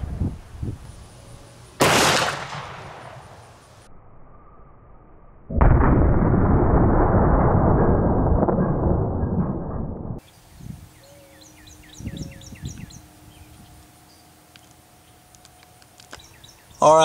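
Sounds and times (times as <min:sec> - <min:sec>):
slowed gunshot boom: 0:01.8 - 0:03.5, 0:05.5 - 0:10.2
bird chirping: 0:10.2 - 0:17.0.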